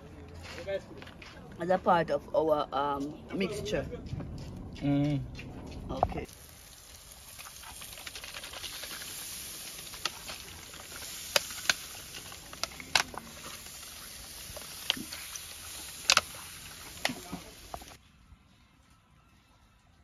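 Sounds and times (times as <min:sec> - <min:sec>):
crackling pops: 0:06.2 - 0:18.0
chicken sizzling on a grill: 0:06.3 - 0:18.0.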